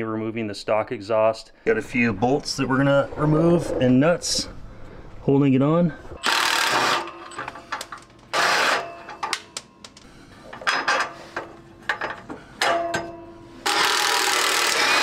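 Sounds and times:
impact wrench hammering: 6.2 - 10.0, 11.9 - 15.0.

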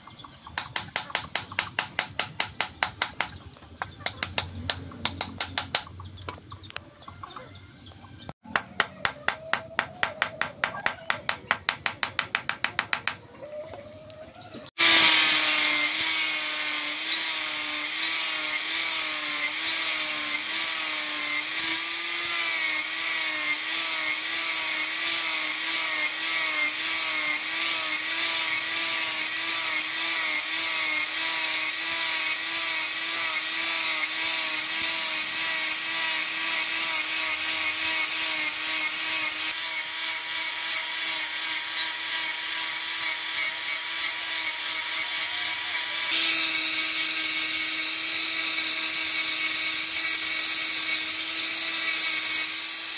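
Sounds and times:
angle grinder sanding steel: 14.8 - 52.9.

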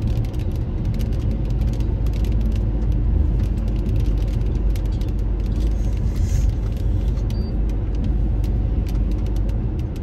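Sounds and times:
engine and road noise rumble: 0.0 - 10.0.

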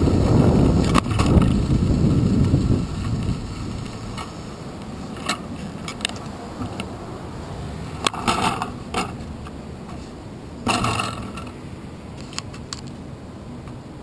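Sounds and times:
bicycle clatter: 0.0 - 6.8, 8.0 - 9.2, 10.6 - 11.6
bicycle rattling and clicking: 0.0 - 6.9, 10.6 - 11.6
street background noise: 0.0 - 14.0.

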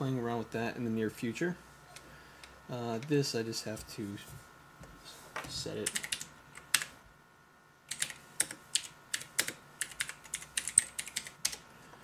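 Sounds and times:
mechanical keyboard typing: 5.8 - 6.9, 7.9 - 11.6.

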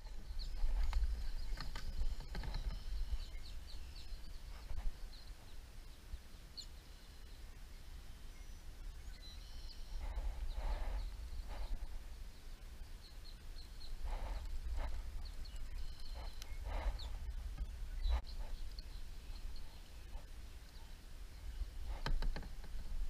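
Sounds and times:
small birds chirping: 0.0 - 23.0
wind rumble on microphone: 0.0 - 23.0
soft rushing noises: 13.9 - 23.0.

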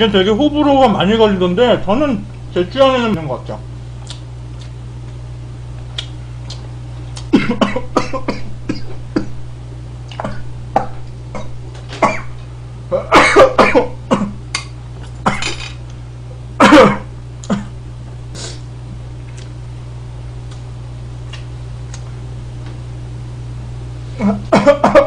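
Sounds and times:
steady low hum: 0.0 - 25.0
man coughing: 7.3 - 9.3, 10.2 - 14.4, 15.2 - 15.6, 16.6 - 17.8, 24.2 - 25.0.

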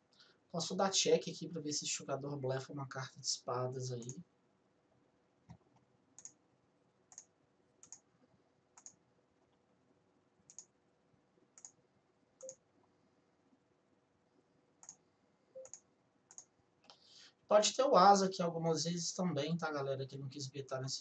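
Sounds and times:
faint mouse clicks: 5.5 - 6.4, 7.1 - 8.1, 8.8 - 9.6, 10.5 - 10.8, 11.6 - 11.8, 14.8 - 15.0, 15.6 - 17.0.

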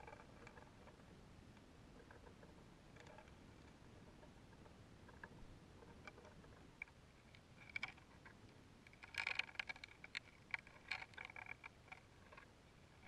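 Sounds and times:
string ticking and clicking: 1.6 - 13.0
sharp rattling clicks: 5.1 - 12.5.

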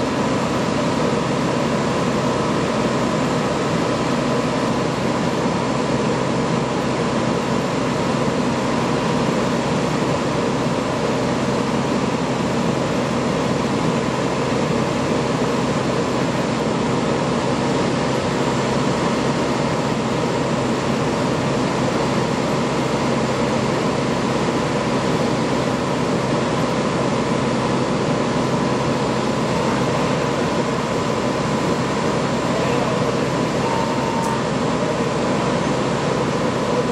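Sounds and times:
machinery drone: 0.0 - 36.9
faint high whine: 29.5 - 36.9.

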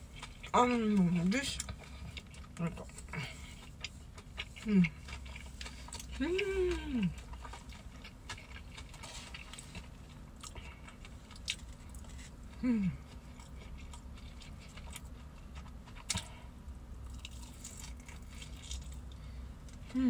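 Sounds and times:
chewing food: 0.0 - 19.9
low steady hum: 0.0 - 20.0
person humming with enjoyment: 12.6 - 13.0.

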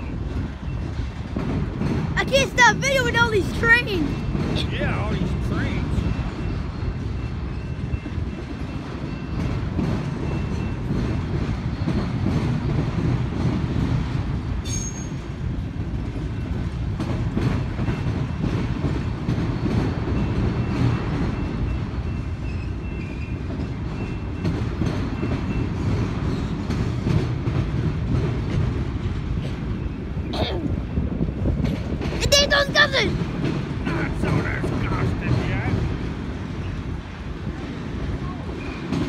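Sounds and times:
train wheels rumbling: 0.0 - 39.0
faint wheel squeal: 14.6 - 15.2, 21.4 - 24.5.

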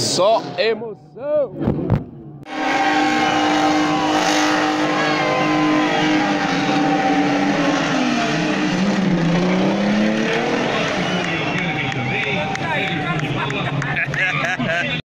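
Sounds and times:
car engine revving: 1.6 - 14.8
tires squealing: 2.5 - 14.4.

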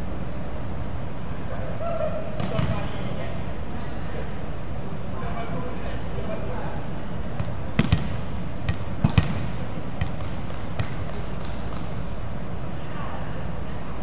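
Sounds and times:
gym hall background noise: 0.0 - 14.0
volleyballs thudding on wooden floor: 7.4 - 12.0.

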